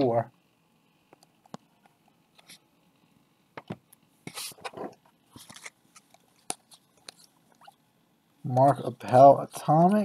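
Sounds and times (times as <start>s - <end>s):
cards sliding swishes: 4.2s - 4.7s.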